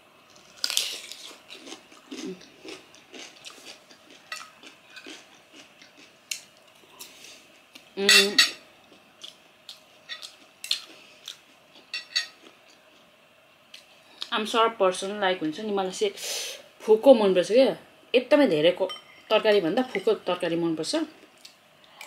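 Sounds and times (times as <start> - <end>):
eating and chewing: 0.3 - 8.0, 8.8 - 14.3
cutlery scraping ceramic plate: 12.0 - 12.4.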